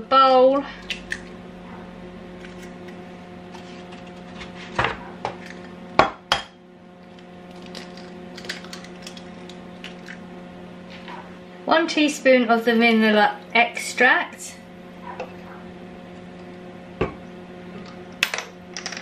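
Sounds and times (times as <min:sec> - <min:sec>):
steady low hum: 0:00.0 - 0:19.0
eggs cracking on ceramic bowl: 0:05.3 - 0:10.3.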